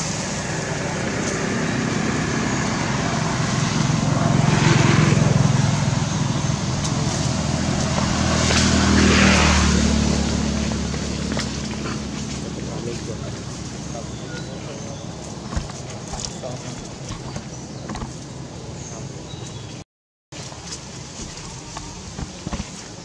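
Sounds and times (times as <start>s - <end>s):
low engine hum: 0.0s - 19.8s, 20.4s - 23.0s
traffic passing by: 0.0s - 19.8s.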